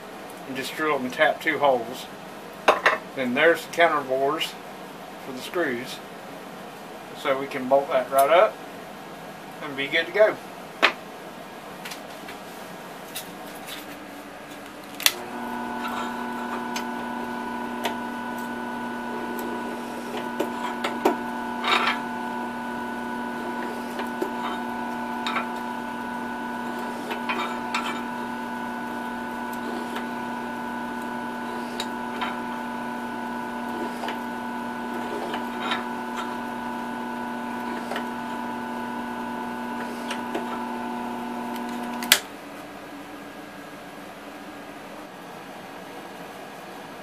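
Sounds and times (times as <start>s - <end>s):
drill press motor humming: 15.1s - 42.2s
cutting clicks and scrapes: 31.0s - 32.5s.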